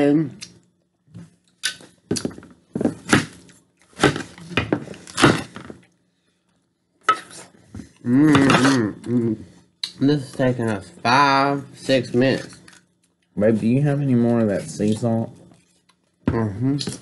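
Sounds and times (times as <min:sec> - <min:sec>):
knife chopping watermelon: 0:02.2 - 0:03.4
short vocal sound: 0:08.0 - 0:09.6.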